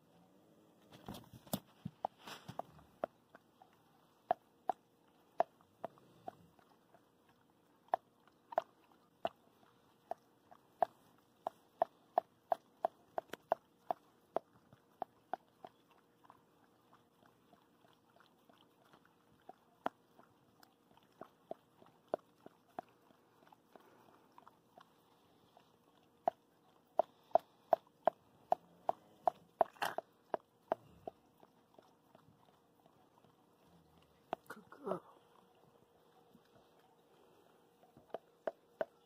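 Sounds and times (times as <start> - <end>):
dog licking and chewing: 0.0 - 39.0.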